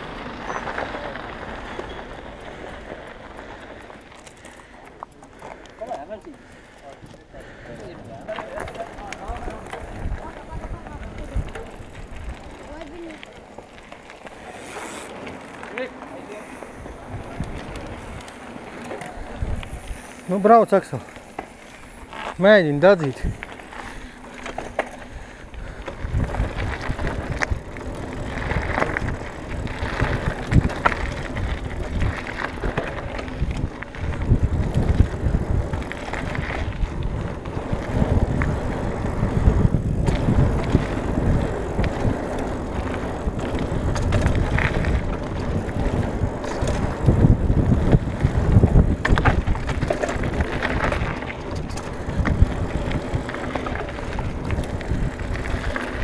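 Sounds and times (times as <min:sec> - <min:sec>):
bike rattling and knocking: 0:00.0 - 0:56.0
bike tyres rumbling on gravel: 0:00.0 - 0:56.0.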